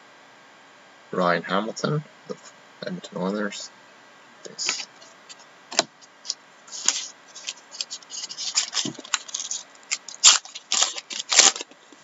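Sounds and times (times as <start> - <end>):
wrapper crinkling and crackling: 6.8 - 12.0.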